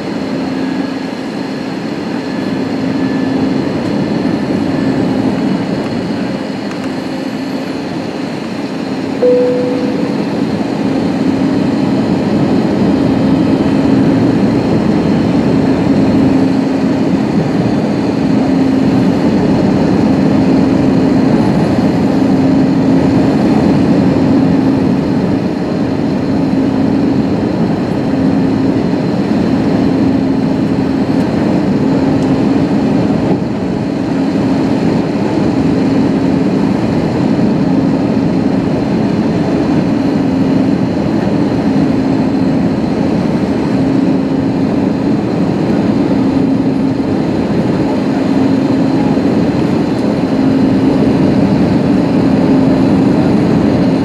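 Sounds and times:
airflow rushing in aircraft cabin: 0.0 - 54.0
short cabin tone: 9.2 - 11.2.

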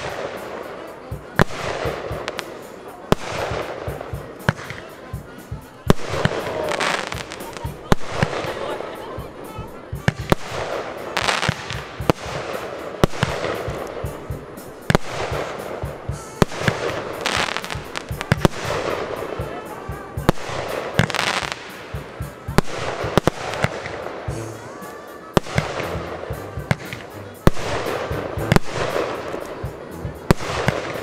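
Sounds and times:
firework bangs: 0.0 - 24.4, 25.4 - 31.0
firework rushing hiss: 5.8 - 24.6.

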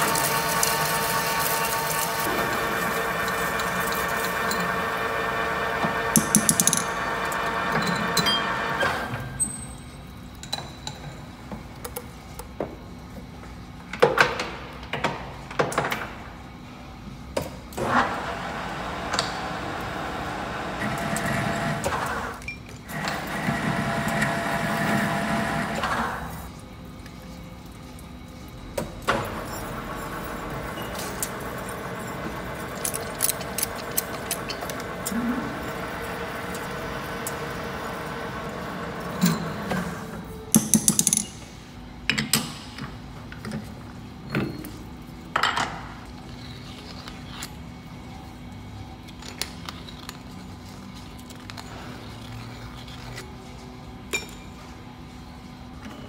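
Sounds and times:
metal lathe running: 0.0 - 9.1
clinks and knocks of tooling: 6.2 - 6.9.

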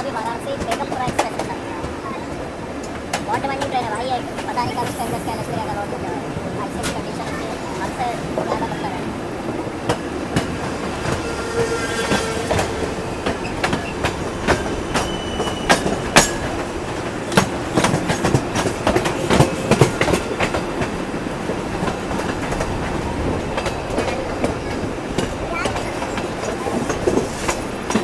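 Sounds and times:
train wheels clattering over rail joints: 0.0 - 5.5, 9.5 - 28.0
faint wheel squeal: 11.2 - 16.0.

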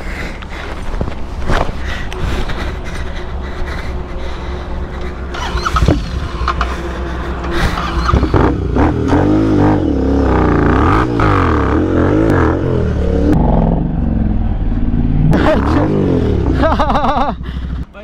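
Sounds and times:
motorcycle engine revving: 5.3 - 17.8.

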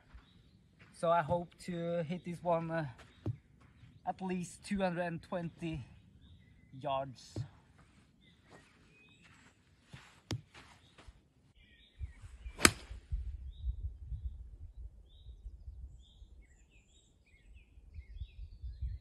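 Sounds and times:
birds chirping: 0.0 - 19.0
golf club striking ball: 12.6 - 13.0.

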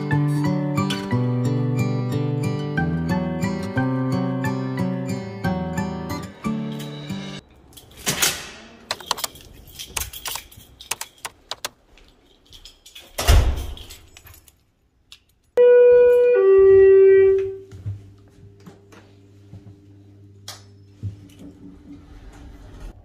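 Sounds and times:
light clicks and jangling: 8.9 - 15.6
elevator arrival chime: 15.6 - 17.7.

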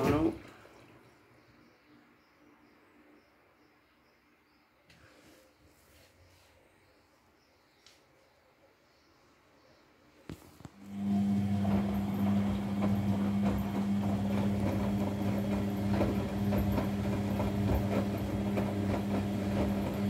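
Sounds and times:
laundry tumbling and water sloshing: 0.0 - 1.1, 10.8 - 20.0
washing machine motor hum: 0.0 - 3.2, 10.3 - 20.0.

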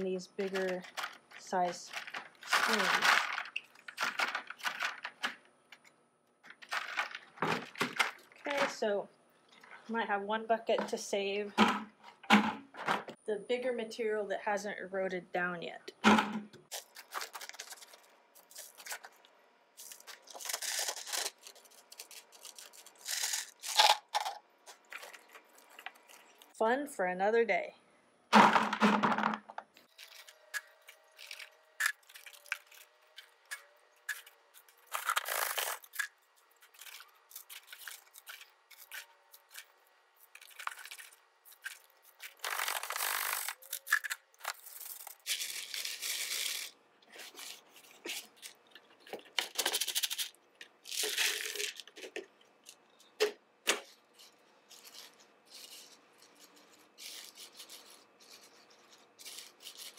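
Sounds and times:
plastic bag rustling: 0.3 - 5.4, 6.4 - 8.8, 16.7 - 19.2.

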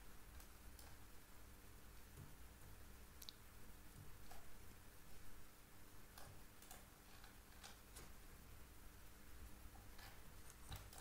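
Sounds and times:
low steady hum: 0.0 - 11.0
computer mouse clicks: 6.1 - 8.0, 10.0 - 11.0.

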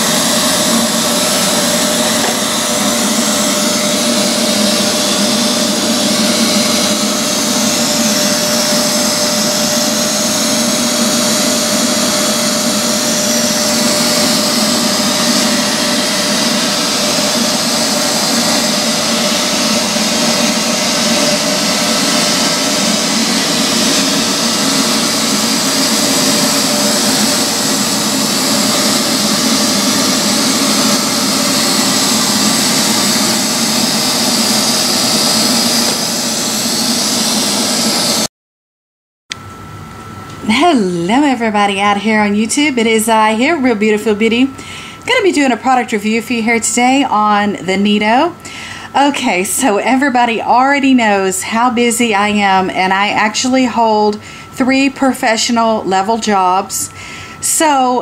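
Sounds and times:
robot vacuum running: 0.0 - 38.3.

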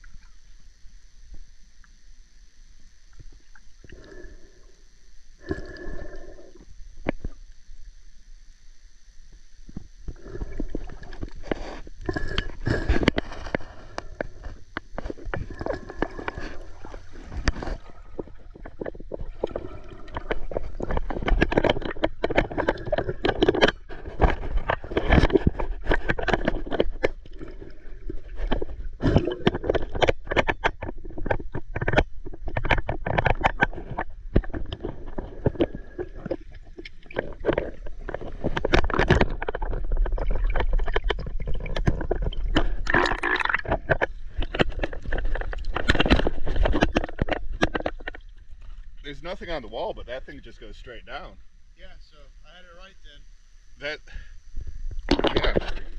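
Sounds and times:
underwater bubbling and gurgling: 0.0 - 51.7, 54.4 - 55.9
faint high whine: 0.0 - 55.9
knocks and scrapes: 10.1 - 51.2, 55.0 - 55.9.

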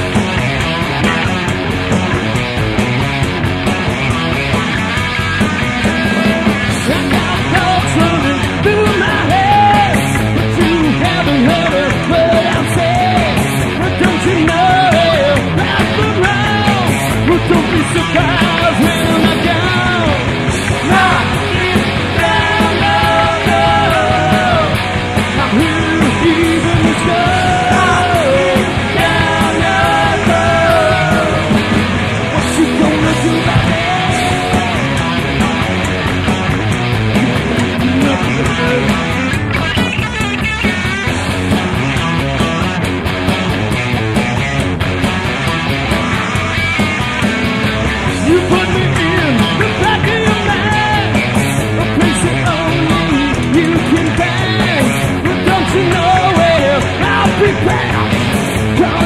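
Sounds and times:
drums: 0.0 - 59.0
electric bass: 0.0 - 59.0
electric guitar: 0.0 - 59.0.

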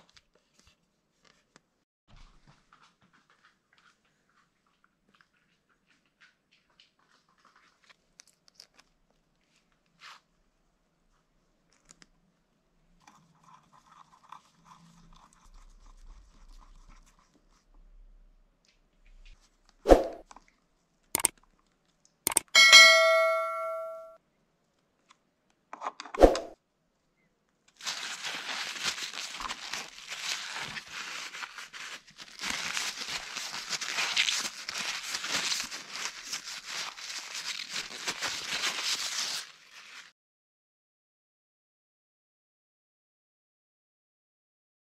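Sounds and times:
paper towel crinkling and rubbing: 27.8 - 40.1.

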